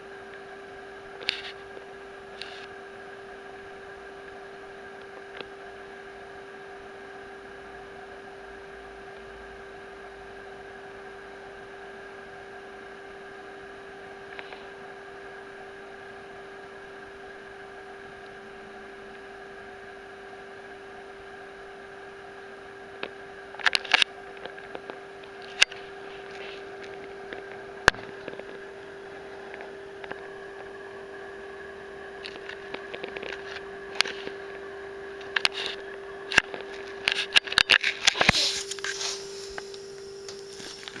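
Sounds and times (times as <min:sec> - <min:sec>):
steady hum: 0:00.0 - 0:41.0
rustling: 0:38.2 - 0:41.0.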